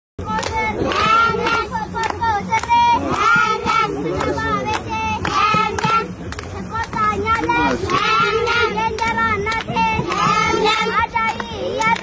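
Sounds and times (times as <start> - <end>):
hands clapping in time: 0.2 - 12.0
children singing: 7.5 - 12.0.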